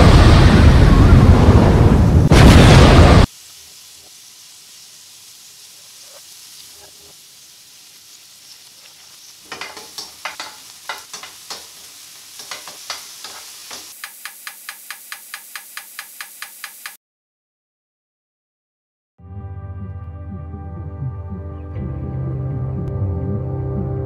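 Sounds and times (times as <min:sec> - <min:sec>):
oil sizzling in a frying pan: 0:02.8 - 0:17.0
clicks and taps of stirring: 0:09.5 - 0:11.7.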